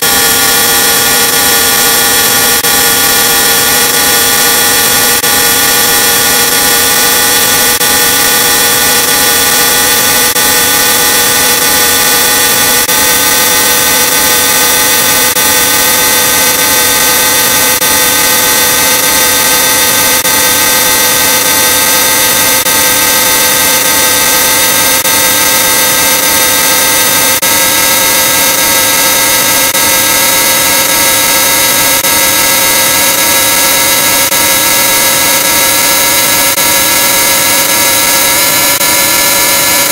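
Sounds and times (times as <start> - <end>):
distorted electronic drone: 0.0 - 39.9.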